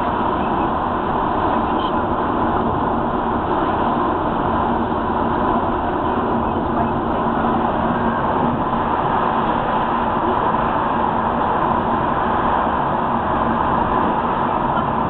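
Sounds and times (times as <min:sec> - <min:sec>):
car road and engine noise: 0:00.0 - 0:15.0
tyres on wet road: 0:00.0 - 0:15.0.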